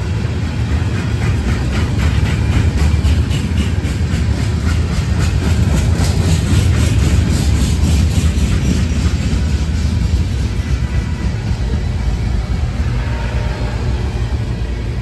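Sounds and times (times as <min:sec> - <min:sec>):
train wheels rumbling on rail: 0:00.0 - 0:15.0
wheels clicking over rail joints: 0:00.2 - 0:11.8.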